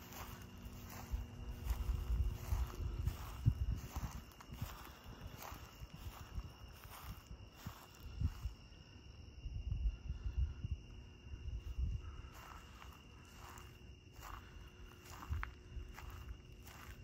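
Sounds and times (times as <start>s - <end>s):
low rumbling on microphone: 0.0s - 8.6s
footsteps outdoors: 0.0s - 9.7s, 10.7s - 17.0s
crickets trilling: 0.0s - 17.0s.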